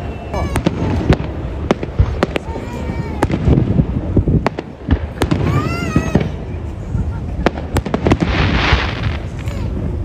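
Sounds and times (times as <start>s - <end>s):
rising firework whistle: 0.0s - 3.6s
fireworks bangs and crackles: 0.0s - 10.0s.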